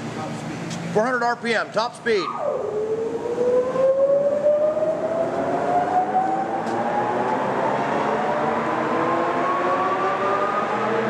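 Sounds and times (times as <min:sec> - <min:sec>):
lathe mechanical whine: 0:02.2 - 0:11.0.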